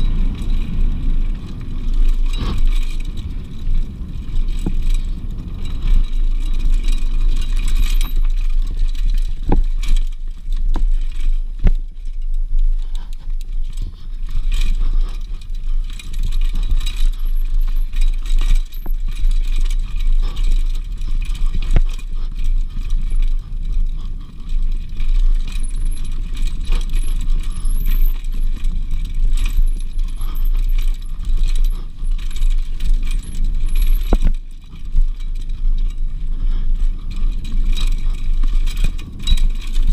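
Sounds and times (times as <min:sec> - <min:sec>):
bike rattling and clicking: 0:00.0 - 0:39.9
wind rumble on microphone: 0:00.0 - 0:39.9.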